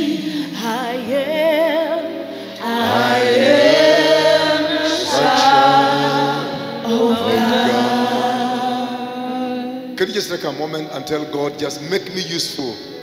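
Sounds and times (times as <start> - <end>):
gospel worship singing: 0.0 - 10.2.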